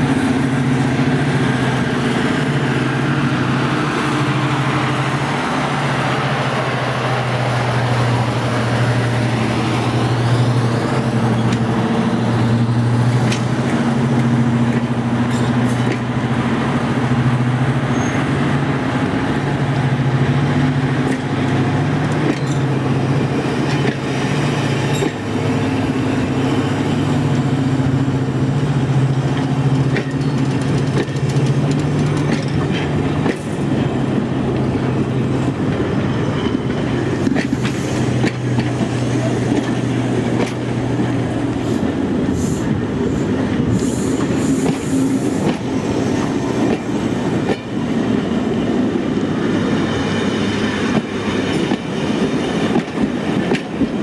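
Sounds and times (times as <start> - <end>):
diesel locomotive engine drone: 0.0 - 54.0
rumble of train coaches: 0.0 - 54.0
wheels clicking on rail joints: 20.3 - 54.0.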